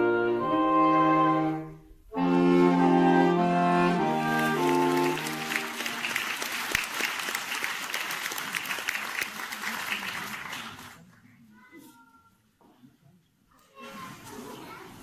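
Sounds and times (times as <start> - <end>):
saxophone quartet chord: 0.0 - 6.2
audience applause: 4.1 - 11.2.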